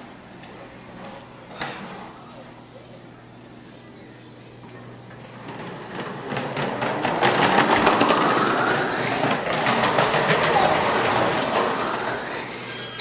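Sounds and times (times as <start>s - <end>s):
plastic toy wheels clattering on tile: 5.3s - 11.8s.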